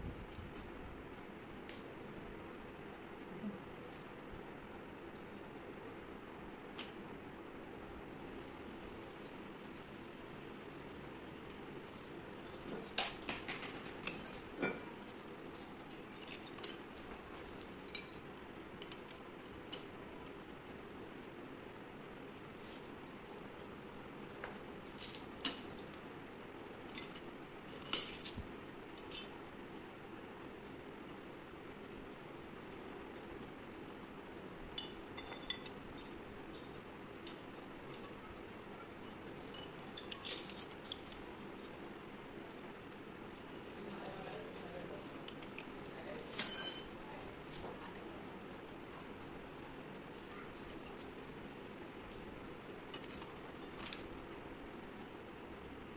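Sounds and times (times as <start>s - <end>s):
steady low hum: 0.0s - 55.9s
steel clinks and knocks: 13.0s - 15.0s, 34.8s - 36.8s, 46.4s - 47.0s
steel bar clinking: 39.0s - 41.8s, 46.4s - 46.9s.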